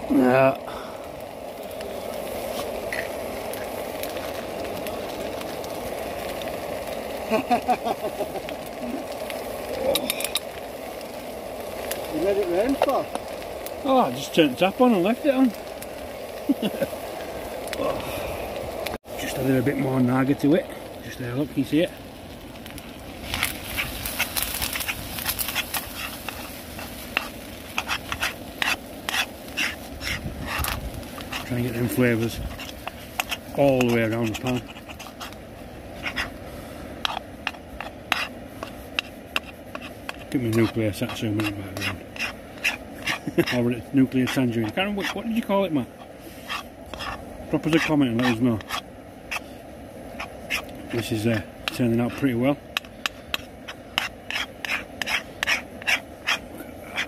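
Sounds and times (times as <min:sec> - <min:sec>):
food sizzling: 0:00.0 - 0:57.0
spoon scraping and stirring pan: 0:23.3 - 0:35.4, 0:36.0 - 0:57.0.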